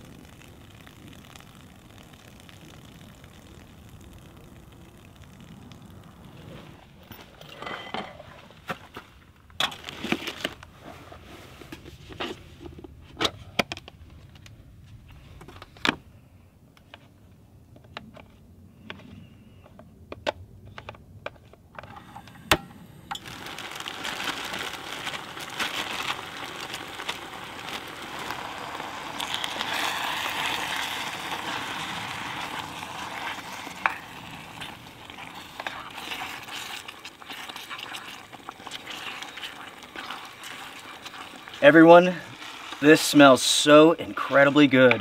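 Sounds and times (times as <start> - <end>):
food sizzling in a hot pan: 0.0 - 6.6, 22.1 - 44.7.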